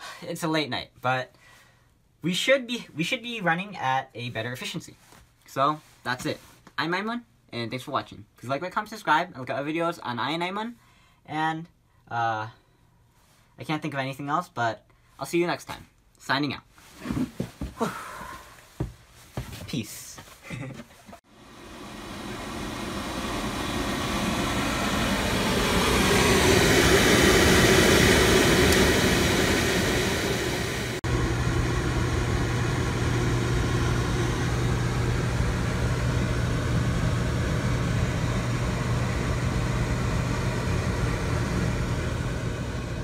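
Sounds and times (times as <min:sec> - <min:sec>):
oil burner humming and rushing: 0:21.3 - 0:43.0
steady low hum: 0:21.3 - 0:43.0.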